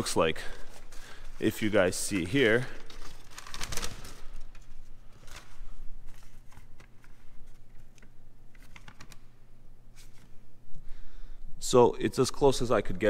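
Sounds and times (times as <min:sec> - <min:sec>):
low steady hum: 0:00.0 - 0:13.0
paper rustling and crackling: 0:00.6 - 0:09.2.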